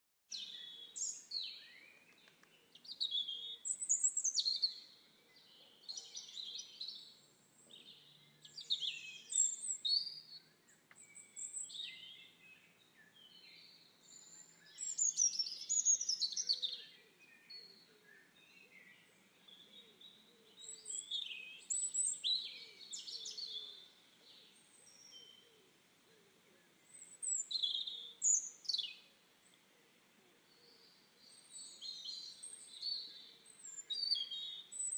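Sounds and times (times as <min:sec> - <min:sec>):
birds chirping and whistling: 0:20.6 - 0:23.7, 0:31.4 - 0:34.9.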